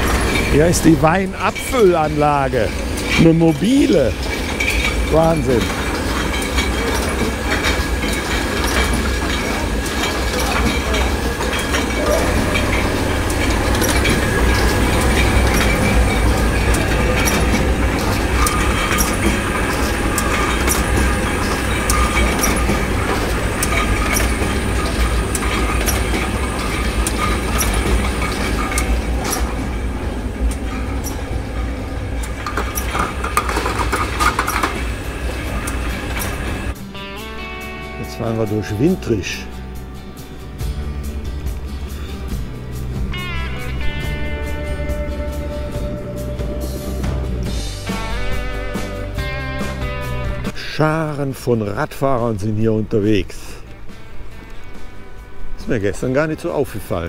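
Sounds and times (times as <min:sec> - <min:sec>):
glass bottles clinking on conveyor: 0:00.0 - 0:36.8
machine hum: 0:00.0 - 0:51.2
steady high tones: 0:00.0 - 0:51.5.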